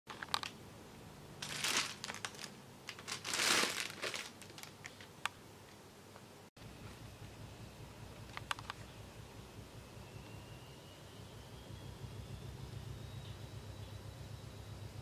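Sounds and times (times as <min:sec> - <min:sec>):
plastic bag crinkling: 0:00.1 - 0:00.6, 0:01.4 - 0:05.2.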